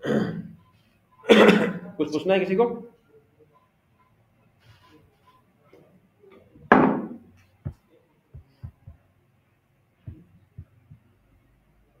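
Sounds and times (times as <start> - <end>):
soft dull knocks: 6.7 - 9.0, 10.1 - 11.1.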